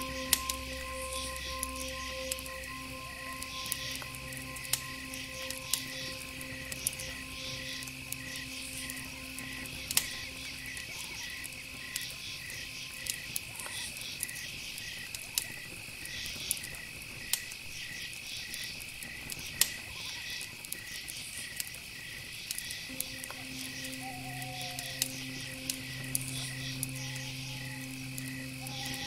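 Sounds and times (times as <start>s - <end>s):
continuous high trill: 0.0s - 14.2s, 22.9s - 29.0s
insects chirping: 0.0s - 29.0s.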